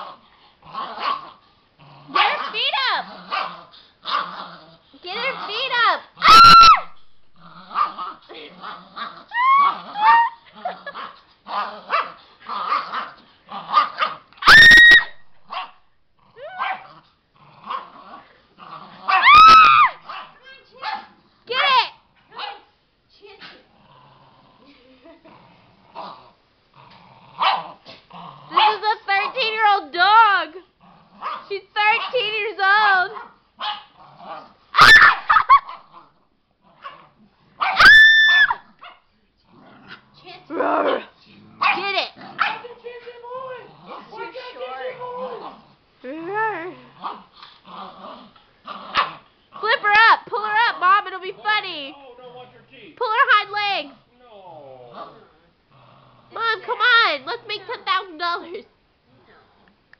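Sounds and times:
dog play-growling: 0.0 - 6.3, 7.0 - 14.4, 15.4 - 19.4, 23.2 - 32.3, 33.8 - 34.7, 35.7 - 37.7, 39.4 - 59.9
dog yelping: 5.2 - 7.0, 9.3 - 10.8, 11.9 - 15.8, 16.4 - 16.9, 19.1 - 22.7, 34.8 - 35.8, 37.6 - 39.0, 40.5 - 42.7
dog whining: 6.2 - 7.0, 9.3 - 10.8, 14.4 - 15.3, 19.1 - 20.0, 37.6 - 38.7, 40.5 - 41.1
dog barking: 11.9 - 13.1, 15.5 - 15.8, 16.6 - 16.9, 19.1 - 21.2, 22.3 - 22.7, 27.4 - 27.7, 31.2 - 32.2, 33.2 - 33.9, 34.8 - 35.8, 37.6 - 37.9, 40.8 - 42.7.

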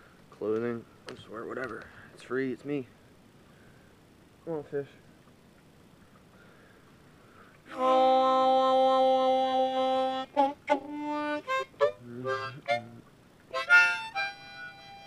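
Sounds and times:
harmonica playing: 7.7 - 15.0.

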